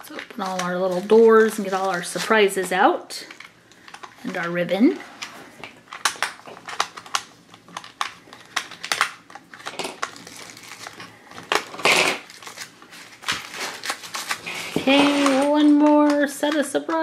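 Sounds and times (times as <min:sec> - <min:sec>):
plastic clicking and snapping: 0:05.9 - 0:10.2.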